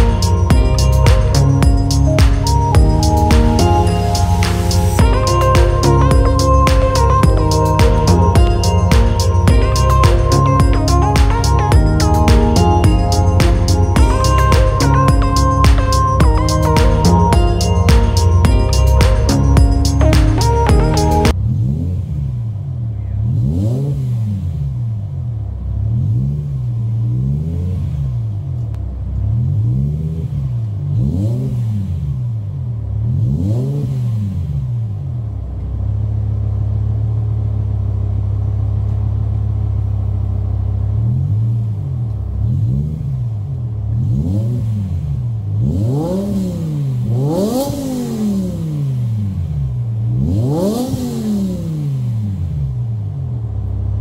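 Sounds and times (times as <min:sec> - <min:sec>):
car engine idling: 0:00.0 - 0:23.5, 0:34.8 - 0:54.0
car engine revving: 0:00.0 - 0:54.0.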